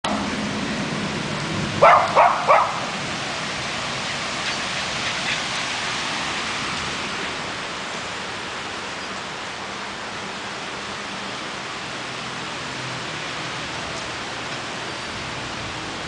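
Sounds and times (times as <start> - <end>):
rain hiss: 0.1 - 16.0
dog barking: 1.8 - 2.9.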